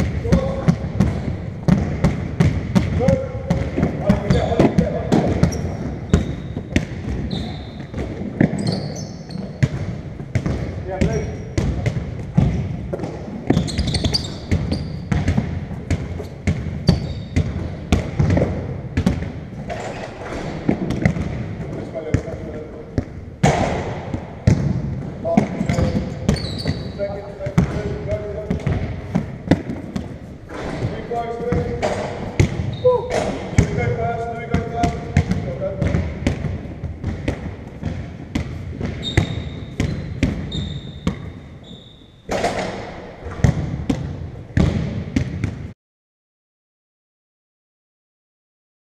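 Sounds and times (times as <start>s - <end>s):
basketball bouncing on wood: 0.0s - 41.3s, 42.3s - 45.7s
sneakers squeaking: 0.0s - 45.7s
short high squeaks: 7.3s - 7.8s, 8.6s - 9.5s, 13.5s - 15.1s, 25.7s - 27.1s, 39.0s - 42.2s.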